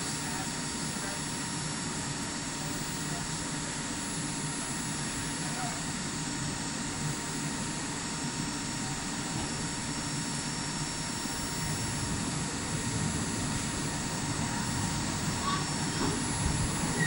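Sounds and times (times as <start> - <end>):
train ventilation whooshing hum: 0.0 - 17.0
faint constant high tone: 13.6 - 17.0.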